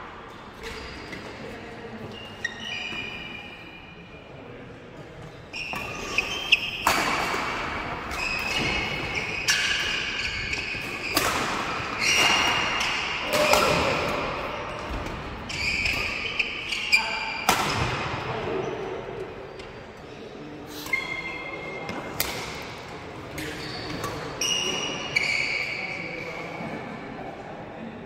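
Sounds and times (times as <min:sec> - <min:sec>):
shoes squeaking on floor: 0:00.3 - 0:03.8, 0:05.3 - 0:07.4, 0:08.1 - 0:14.0, 0:14.6 - 0:17.4, 0:20.8 - 0:22.0, 0:23.4 - 0:26.2
racket hitting shuttlecock: 0:05.7 - 0:15.2, 0:17.4 - 0:18.2.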